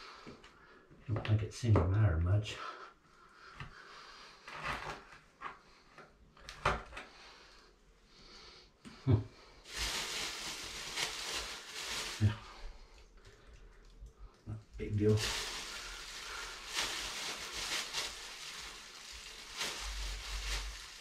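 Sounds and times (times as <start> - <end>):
plastic bag rustling: 9.6 - 13.5, 14.8 - 21.0.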